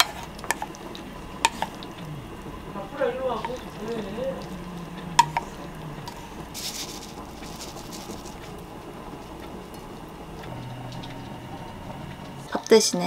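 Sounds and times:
spoon scraping a pan: 0.0s - 1.9s
faint kitchen background: 0.0s - 13.0s
low hum: 0.0s - 13.0s
spoon knocking on a pan: 1.4s - 1.8s, 5.2s - 6.2s.

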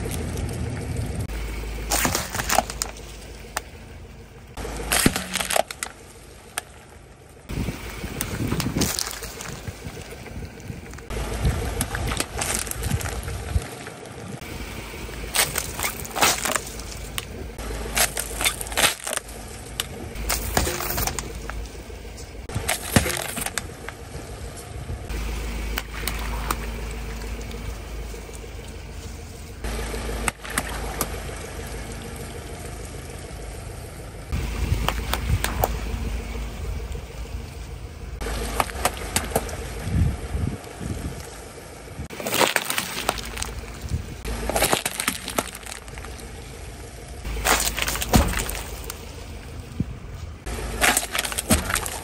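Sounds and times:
low tyre rumble: 0.0s - 52.0s
plastic bottles crushing and cracking: 1.8s - 3.7s, 4.8s - 6.8s, 8.2s - 14.4s, 15.2s - 21.8s, 22.4s - 24.0s, 38.2s - 39.6s, 42.1s - 46.3s, 47.2s - 49.1s, 50.5s - 52.0s.

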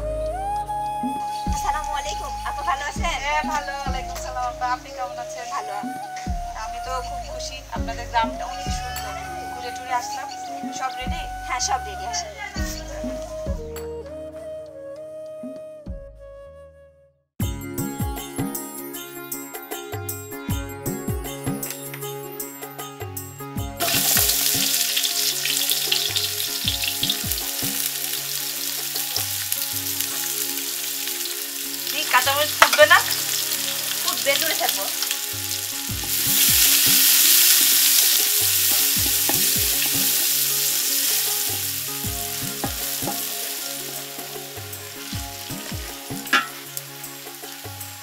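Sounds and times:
onions sizzling in hot oil: 23.8s - 48.0s.

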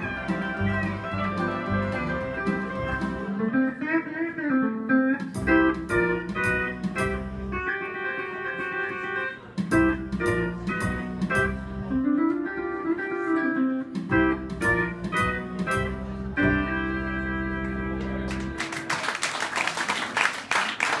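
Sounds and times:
pedal steel guitar chords: 0.0s - 9.2s, 9.8s - 18.6s
audience clapping: 18.1s - 21.0s.

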